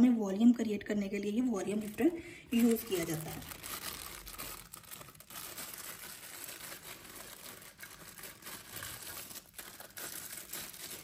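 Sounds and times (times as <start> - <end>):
plastic bag crinkling: 1.6 - 11.0.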